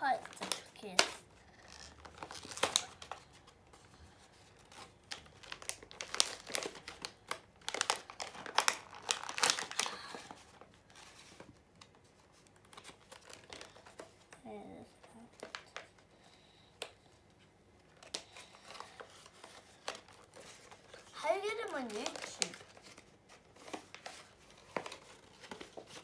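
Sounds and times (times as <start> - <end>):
plastic packaging crinkling: 0.0 - 3.5, 4.4 - 14.1, 17.8 - 26.0
plastic tearing: 0.2 - 3.4, 4.6 - 14.1, 17.9 - 26.0.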